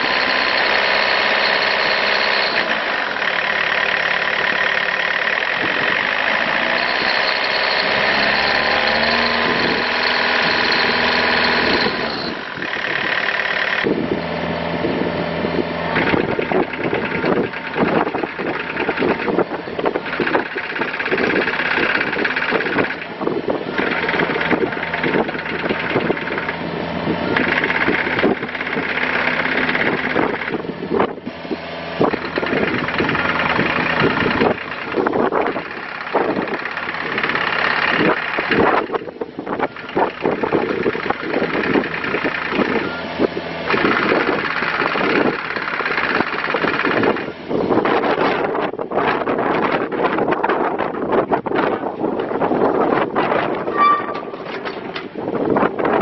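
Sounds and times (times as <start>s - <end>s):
hydraulic whine: 0.0s - 47.9s, 52.0s - 56.0s
excavator diesel engine running: 0.0s - 56.0s
metal clanks and rattles: 16.0s - 26.7s, 52.0s - 56.0s.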